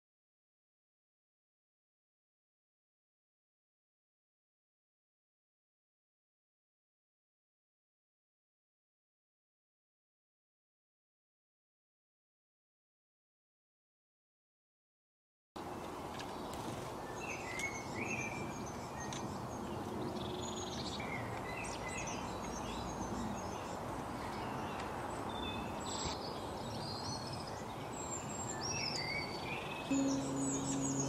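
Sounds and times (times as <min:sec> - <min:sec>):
songbirds chirping: 0:15.6 - 0:31.0.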